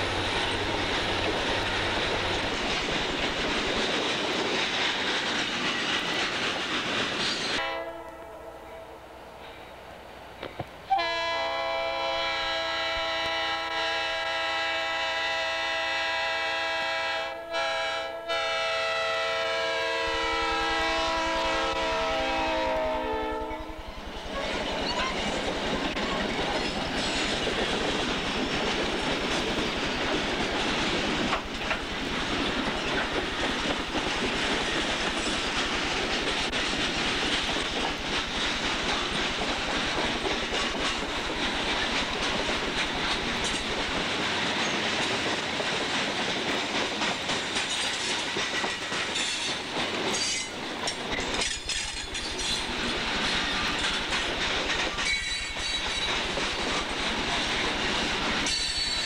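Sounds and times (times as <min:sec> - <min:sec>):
wheels clacking over rail joints: 0:00.0 - 0:07.6, 0:24.2 - 0:59.0
train rumbling past: 0:00.0 - 0:59.0
locomotive air horn: 0:07.6 - 0:09.0, 0:10.9 - 0:23.8.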